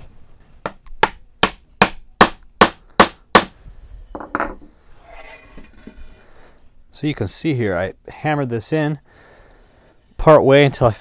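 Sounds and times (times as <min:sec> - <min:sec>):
hammer striking wood: 0:00.6 - 0:03.6.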